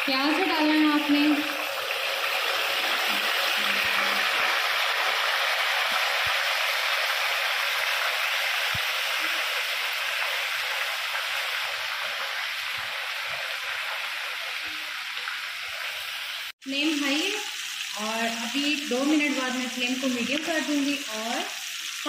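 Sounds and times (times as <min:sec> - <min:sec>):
oil sizzling and popping: 0:00.0 - 0:22.0.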